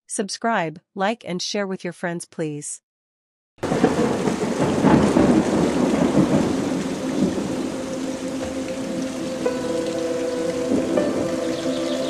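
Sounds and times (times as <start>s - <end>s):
rain falling: 3.6s - 12.0s
thunder rumbling: 3.6s - 12.0s.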